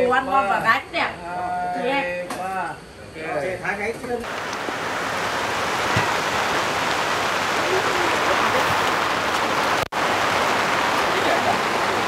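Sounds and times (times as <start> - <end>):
steady rain falling: 4.2 - 12.0.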